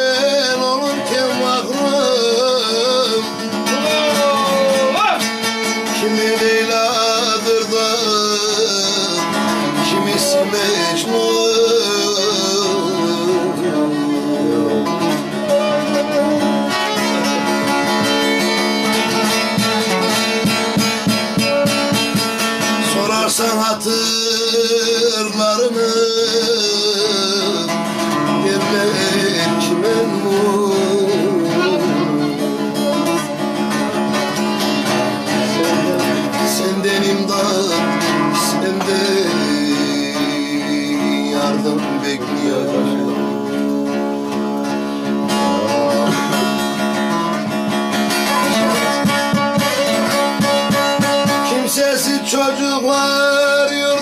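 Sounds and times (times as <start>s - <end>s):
long-necked lute strummed fast: 0.0s - 54.0s
man singing: 0.0s - 54.0s.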